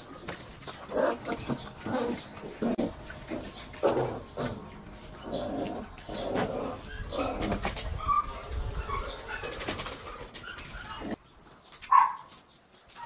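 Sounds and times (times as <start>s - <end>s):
puppies whimpering and yipping: 0.8s - 11.2s
sharp clicks of small dogs moving: 9.4s - 13.0s.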